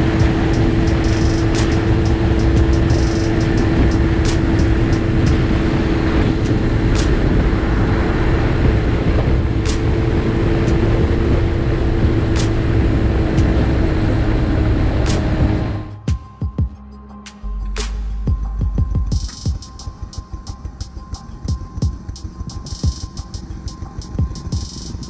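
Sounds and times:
wind rush on microphone: 0:00.0 - 0:16.0
motorcycle engine cruising: 0:00.0 - 0:16.1.

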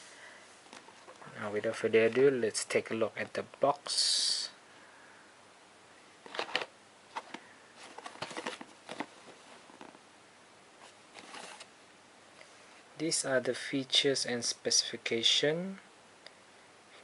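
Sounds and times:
cardboard box rustling: 0:06.3 - 0:10.0, 0:10.8 - 0:11.7.

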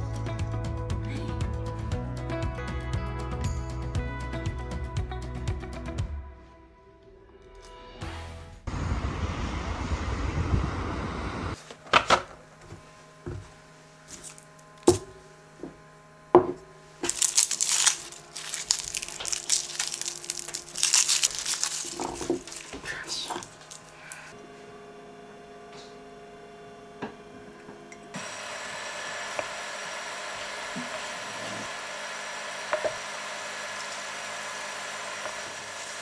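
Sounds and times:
knocks on wooden board: 0:16.4 - 0:16.6
garlic skins crackling: 0:17.0 - 0:24.3.

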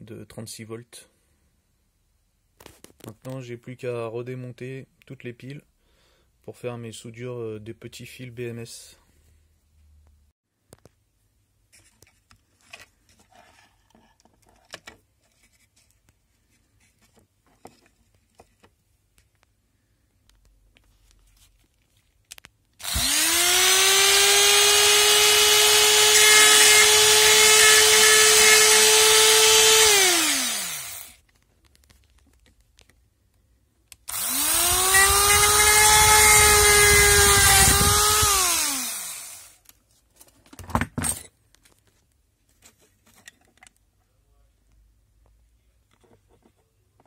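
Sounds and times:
rotary tool grinding plastic: 0:22.8 - 0:31.2, 0:34.1 - 0:39.6.

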